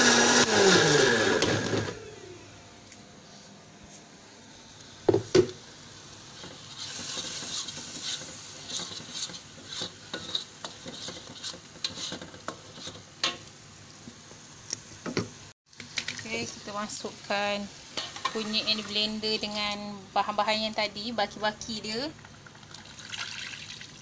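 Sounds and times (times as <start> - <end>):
spice paste sizzling in a wok: 4.5 - 21.4.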